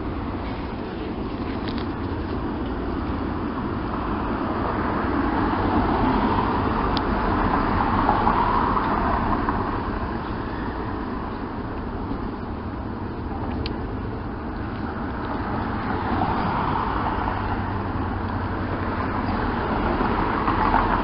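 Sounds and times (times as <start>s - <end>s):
low traffic rumble: 0.0s - 21.0s.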